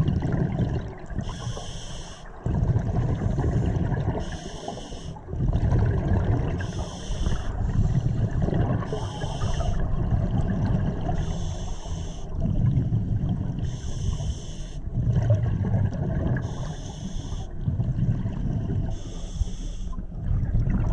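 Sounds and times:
low rumble of water: 0.0s - 20.9s
breath hissing through regulator: 1.2s - 2.3s, 4.2s - 5.2s, 6.6s - 8.2s, 8.8s - 9.8s, 11.2s - 12.4s, 13.6s - 14.8s, 16.4s - 17.5s, 18.9s - 20.0s
bubbling exhalations: 5.3s - 11.3s.

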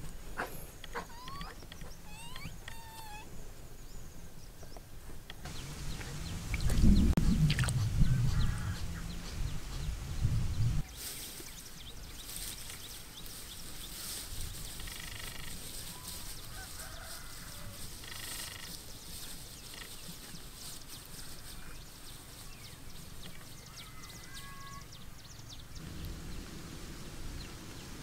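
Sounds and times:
buzzy animal calls: 0.4s - 3.3s, 7.8s - 9.2s
faint high ticks and chirps: 17.9s - 26.5s.

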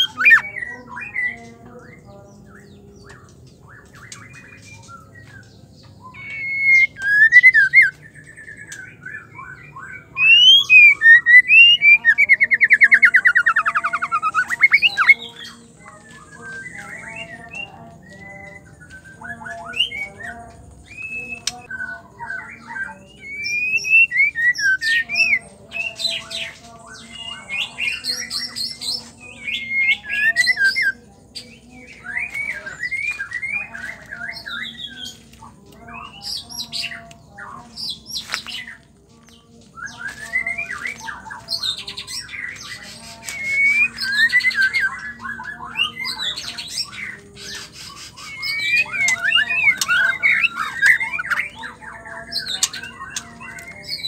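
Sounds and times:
bird singing whistled phrases: 3.8s - 17.6s, 18.4s - 25.4s, 39.8s - 54.0s.

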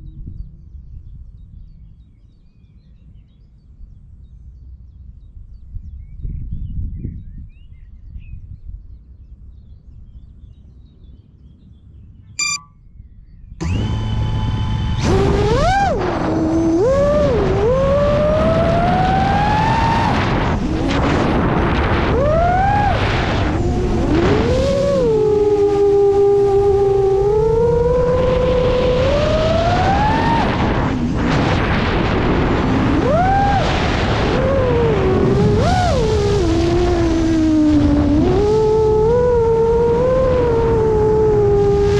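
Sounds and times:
short electronic beep: 12.4s - 12.8s
drone motors whining: 13.6s - 41.9s.

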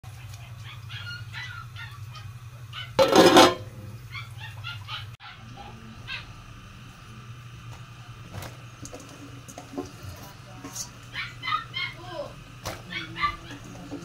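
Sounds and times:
steady low hum: 0.1s - 14.0s
poultry chirping: 0.2s - 3.0s.

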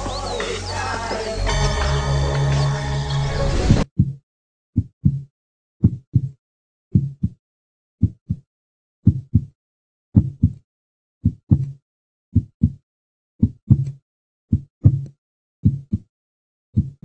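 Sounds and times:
heartbeat double beats: 4.8s - 7.4s, 8.0s - 9.6s, 10.2s - 10.6s, 12.4s - 12.8s.

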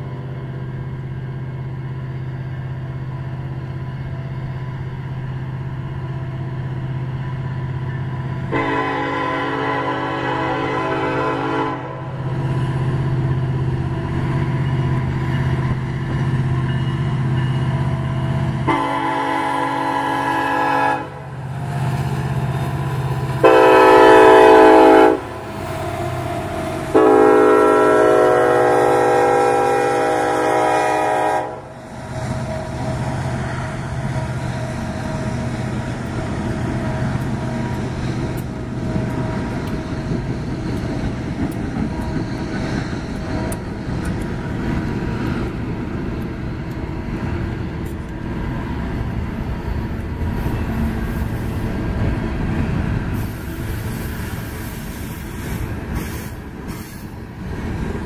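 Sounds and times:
diesel locomotives droning: 0.0s - 58.0s
locomotive air horn blasts: 8.5s - 12.2s, 18.6s - 21.3s, 23.4s - 25.4s, 26.9s - 31.8s.

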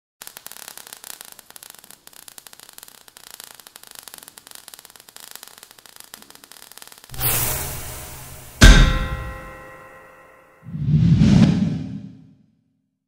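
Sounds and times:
crackling sparks: 0.2s - 10.1s.

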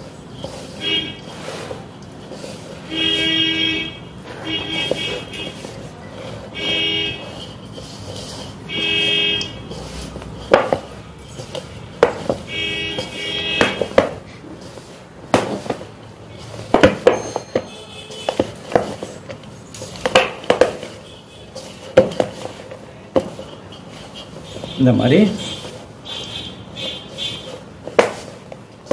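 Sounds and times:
dough kneaded in steel bowl: 0.0s - 28.9s
knocks and scrapes on bowl: 4.4s - 21.0s, 21.6s - 24.8s.

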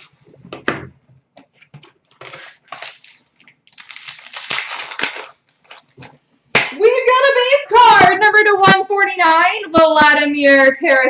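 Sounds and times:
foil wrapper crinkling and tearing: 0.0s - 0.2s, 2.0s - 6.2s.

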